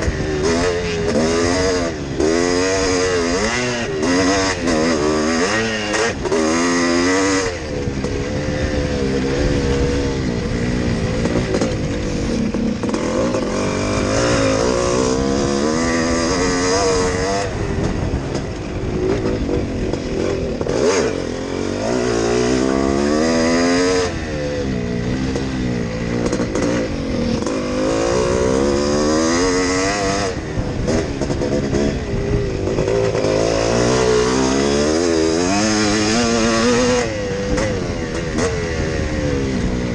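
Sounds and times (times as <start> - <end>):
motocross engine revving: 0.0 - 39.9.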